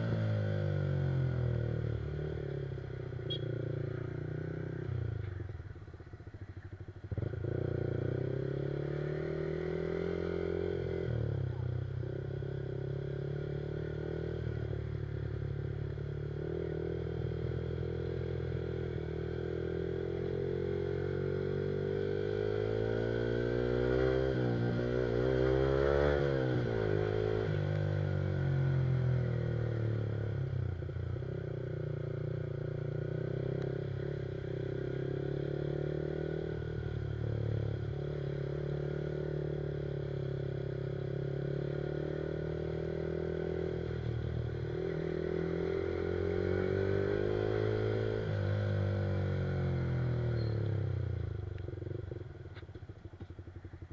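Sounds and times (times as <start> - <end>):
motorcycle engine revving: 0.0 - 53.9.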